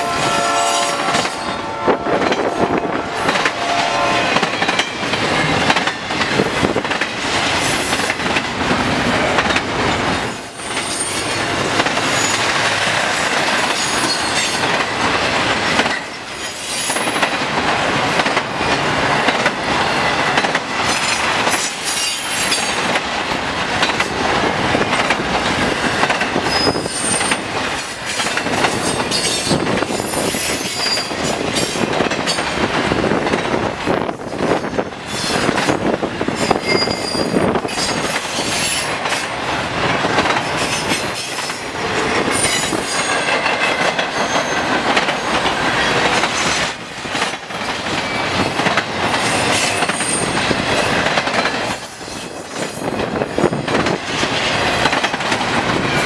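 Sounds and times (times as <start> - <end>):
train wheels rumbling on rails: 0.0 - 56.0
high-pitched wheel squeals: 36.5 - 37.4.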